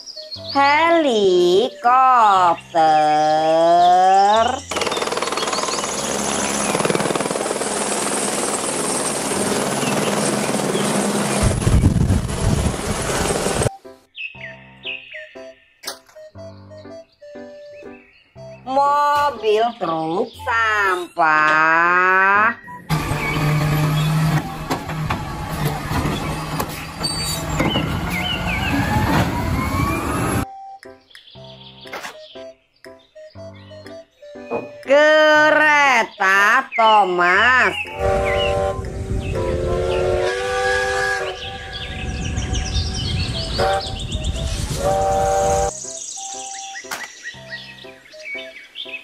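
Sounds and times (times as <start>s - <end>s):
helicopter flying low: 4.7s - 13.7s
garbage truck engine running: 22.7s - 30.4s
truck whine rising in pitch: 22.7s - 30.6s, 37.9s - 45.7s
hydraulic arm clanking: 22.9s - 30.4s.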